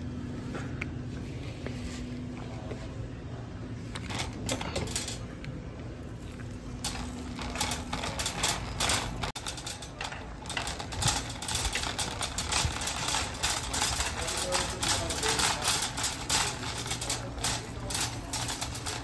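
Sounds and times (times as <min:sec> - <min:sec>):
shopping cart rattling on tiles: 0:04.0 - 0:05.3, 0:06.1 - 0:19.0.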